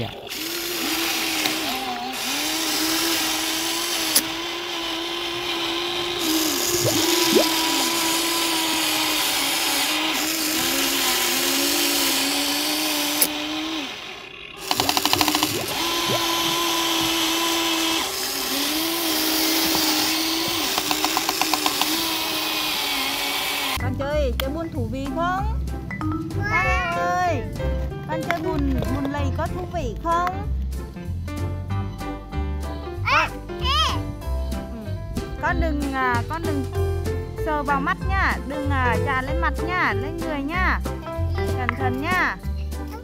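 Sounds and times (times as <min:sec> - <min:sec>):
toy electric motor whining: 0:00.0 - 0:23.8
rapid ticking: 0:08.5 - 0:22.2.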